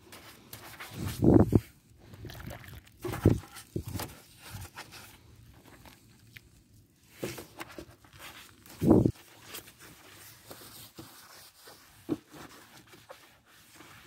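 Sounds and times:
soapy sponge scrubbing plastic: 0.1s - 14.0s.

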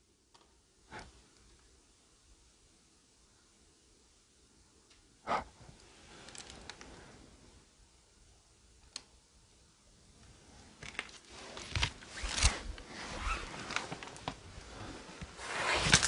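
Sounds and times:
rustling and crunching of debris: 5.8s - 7.0s, 10.5s - 16.0s.

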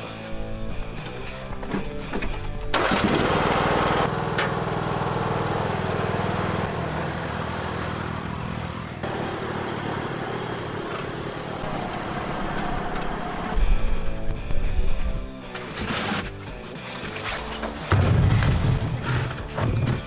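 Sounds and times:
lawn tractor engine idling: 2.7s - 13.5s.

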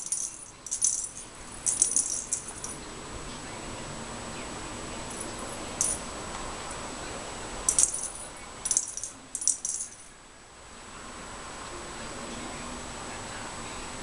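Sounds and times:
cat toy ball rattling: 0.0s - 2.8s, 7.7s - 10.0s.

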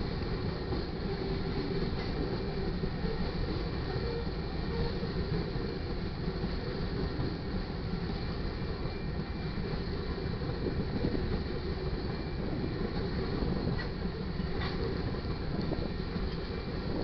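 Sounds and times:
train wheels rolling on rails: 0.0s - 17.0s.

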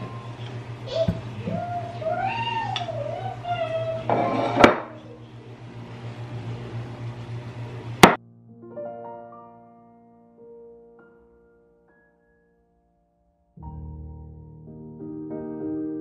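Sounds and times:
steady low hum: 0.0s - 8.2s
soft piano music: 8.2s - 16.0s.

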